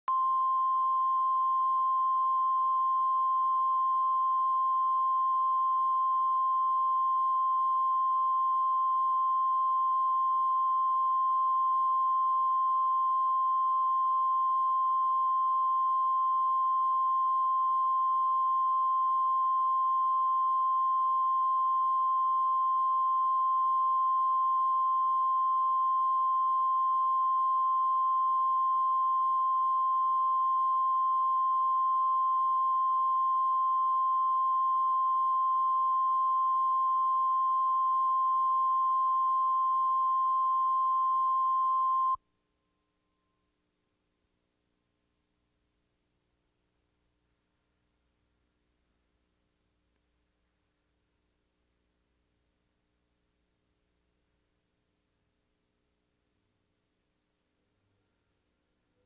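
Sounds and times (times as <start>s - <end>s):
steady test tone beep: 0.0s - 42.2s.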